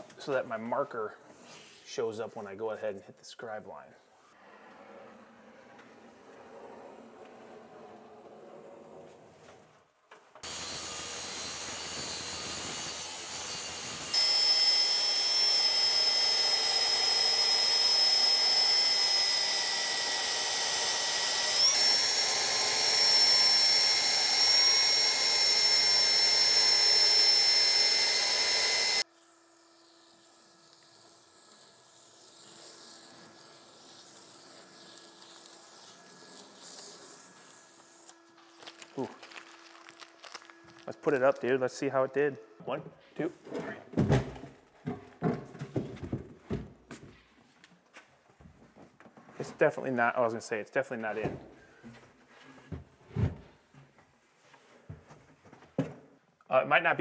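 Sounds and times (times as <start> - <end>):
belt sander whining: 10.4 - 29.1.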